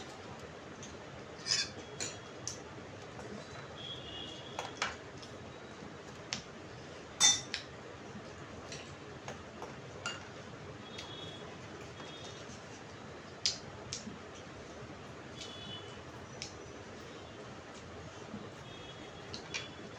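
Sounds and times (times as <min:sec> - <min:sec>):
cutlery clinking against plates: 0:01.4 - 0:02.6, 0:07.2 - 0:07.7, 0:10.0 - 0:10.3.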